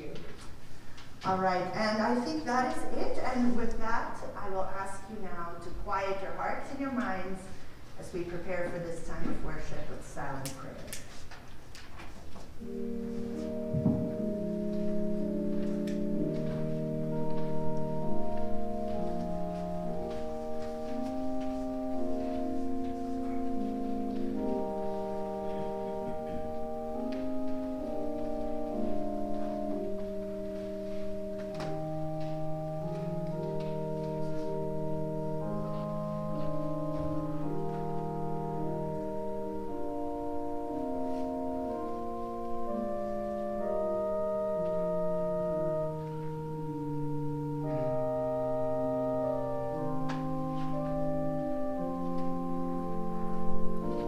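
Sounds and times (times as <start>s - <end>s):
organ playing held chords: 12.4s - 54.0s.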